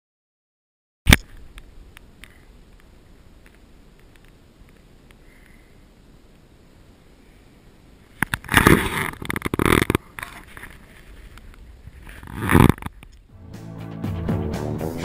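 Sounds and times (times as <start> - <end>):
microphone rubbing and rumbling: 8.0 - 13.2.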